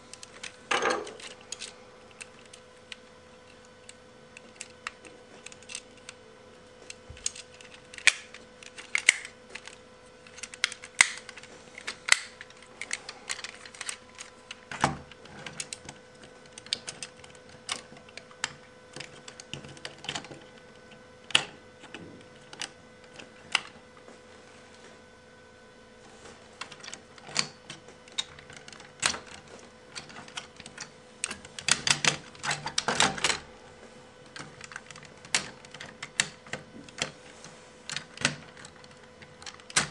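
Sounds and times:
plastic toy parts clicking: 0:03.8 - 0:06.2, 0:07.2 - 0:14.6.

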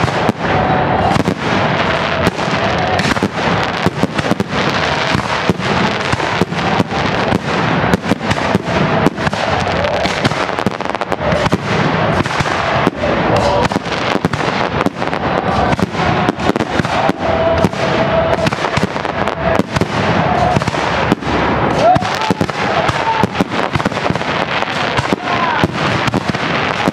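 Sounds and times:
fireworks bangs and crackling: 0:00.0 - 0:26.9.

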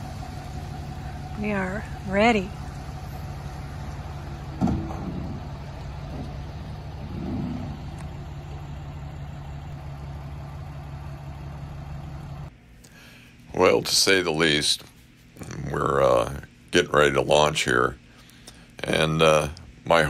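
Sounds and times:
diesel engine running at low revs: 0:00.0 - 0:12.6.

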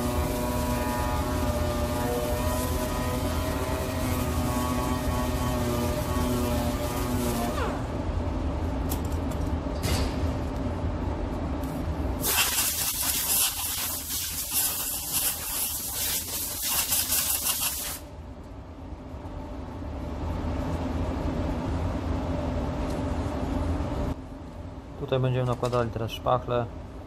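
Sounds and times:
steady low hum: 0:00.0 - 0:27.0
compressed air blow gun hissing: 0:12.2 - 0:18.0.

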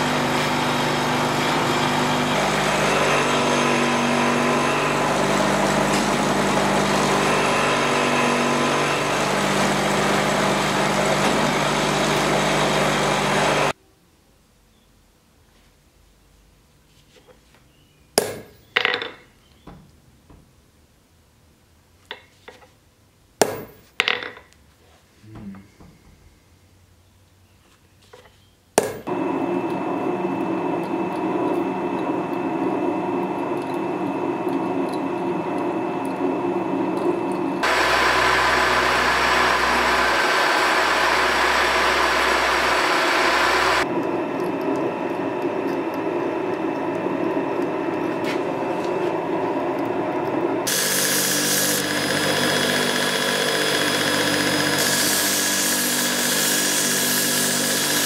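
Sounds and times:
belt grinder grinding steel: 0:00.0 - 0:13.7, 0:29.7 - 0:43.9, 0:50.6 - 0:58.0
drill press boring into metal: 0:33.2 - 0:44.6, 0:50.7 - 0:58.0.

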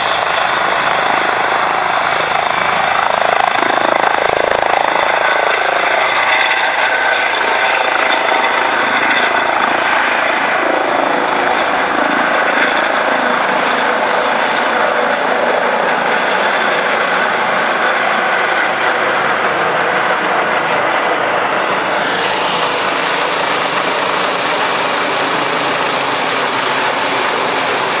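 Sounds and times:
helicopter engines and rotor: 0:00.0 - 0:28.0
high turbine whine: 0:00.0 - 0:28.0.

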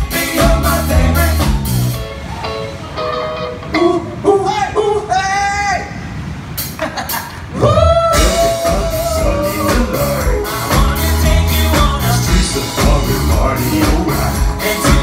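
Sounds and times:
pop-rock band playing: 0:00.0 - 0:04.4, 0:07.6 - 0:15.0.

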